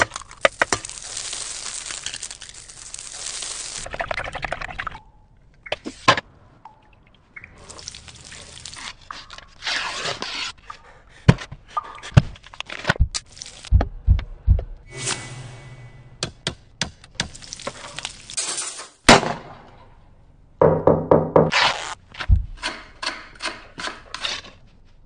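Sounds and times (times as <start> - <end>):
sharp knocks and dull thumps: 22.3 - 23.5.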